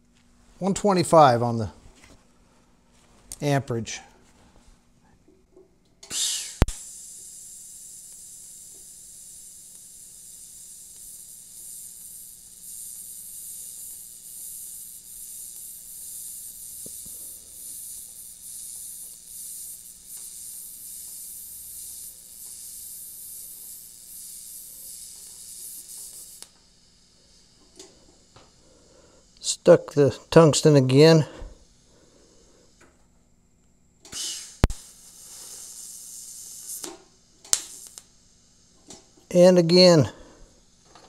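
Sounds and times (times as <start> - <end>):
arc strike crackle and click: 5.8 - 26.7, 33.6 - 35.1, 36.5 - 38.2
welding arc hissing: 6.0 - 33.0, 34.0 - 41.0.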